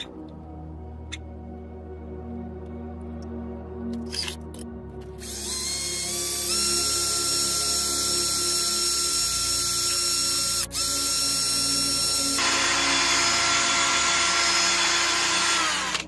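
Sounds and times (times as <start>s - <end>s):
drill clicks: 5.2s - 16.0s
drill motor whine: 5.2s - 16.0s.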